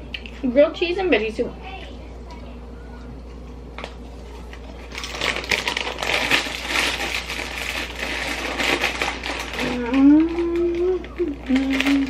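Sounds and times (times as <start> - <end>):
chip bag crinkling: 4.6 - 12.0.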